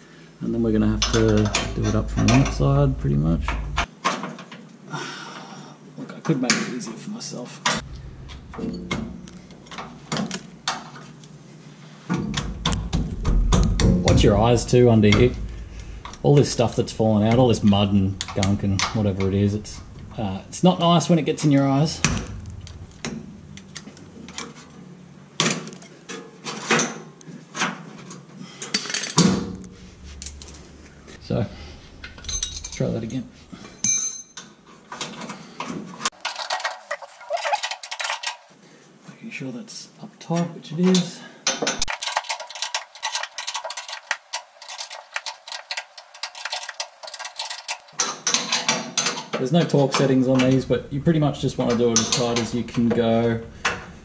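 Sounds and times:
metal hardware clinking: 0.9 - 2.8, 7.7 - 11.0, 31.8 - 34.6, 36.1 - 38.6, 41.7 - 49.3
metallic clicking of hand tool: 41.8 - 49.1.

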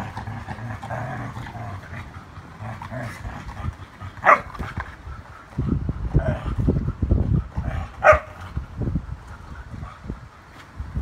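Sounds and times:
dog growling: 0.0 - 8.6
dog barking: 4.2 - 4.5, 8.0 - 8.3.

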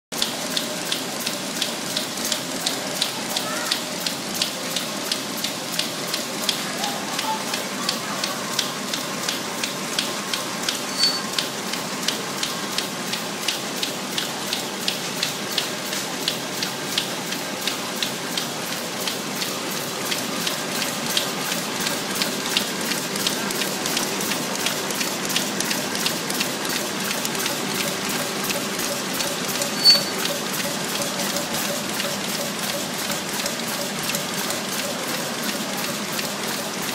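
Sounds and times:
packing machine clicking: 18.3 - 36.9.

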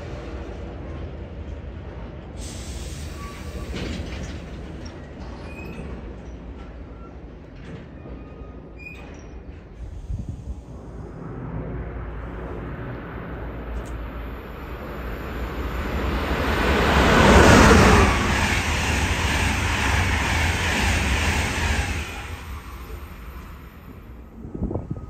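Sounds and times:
train passing at speed: 0.0 - 8.2, 9.5 - 25.0.

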